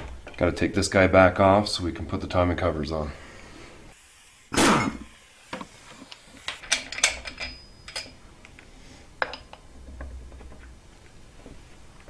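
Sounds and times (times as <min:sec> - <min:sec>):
metallic clinks and knocks: 0:06.6 - 0:08.2.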